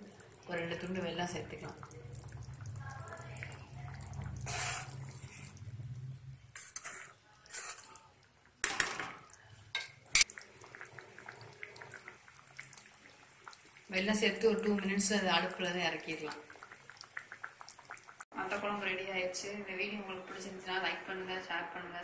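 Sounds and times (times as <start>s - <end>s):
spoon scraping and clinking in pan: 6.6s - 8.0s.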